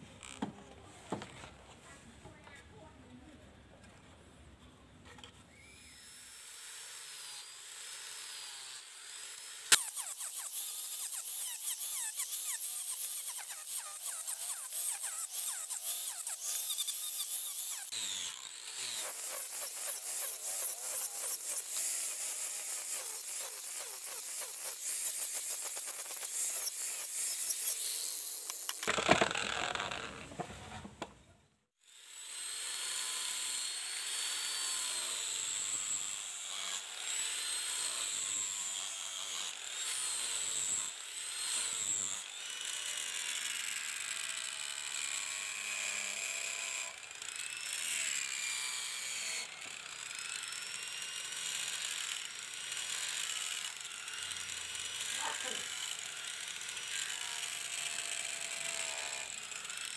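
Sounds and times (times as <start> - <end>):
tool rasping steel blade: 5.8 - 30.5.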